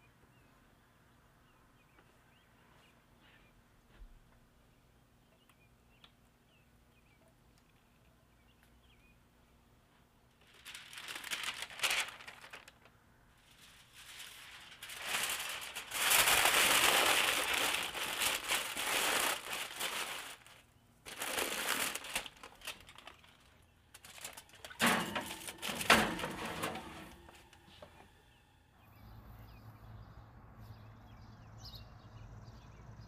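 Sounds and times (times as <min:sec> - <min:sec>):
foil and paper crinkling: 0:10.4 - 0:27.6.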